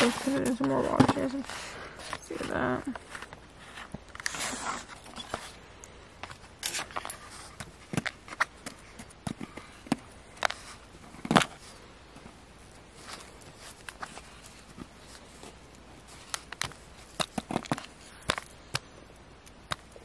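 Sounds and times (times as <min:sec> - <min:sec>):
digging tool scraping: 0:03.6 - 0:05.6.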